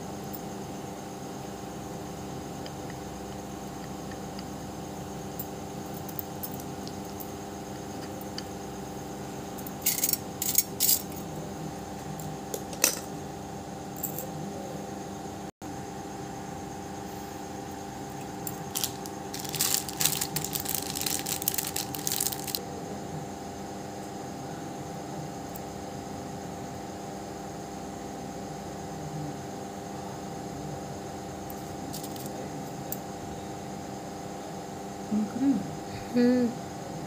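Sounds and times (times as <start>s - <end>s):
steady hum: 0.0s - 37.0s
crackling rustling handling noise: 18.4s - 22.6s.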